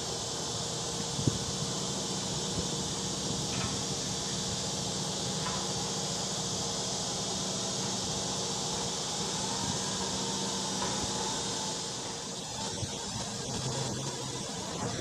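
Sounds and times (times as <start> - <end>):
constant hiss: 0.0 - 15.0
garbage truck diesel engine: 0.0 - 15.0.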